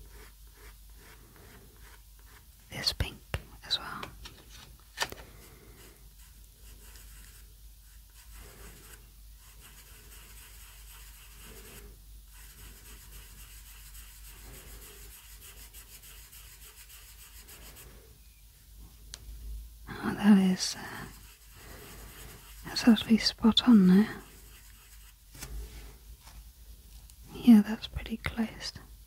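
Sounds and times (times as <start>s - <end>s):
pastel scratching on paper: 0.0s - 2.5s, 5.7s - 18.0s, 20.3s - 25.7s.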